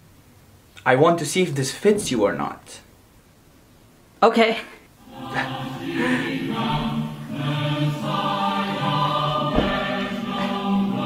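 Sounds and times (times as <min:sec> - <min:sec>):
choir singing held notes: 0:05.0 - 0:11.0.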